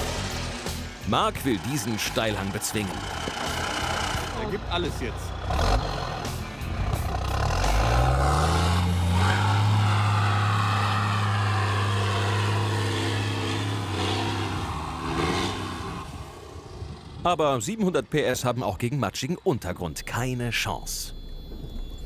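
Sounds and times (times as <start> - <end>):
truck engine revving: 0.0 - 17.4.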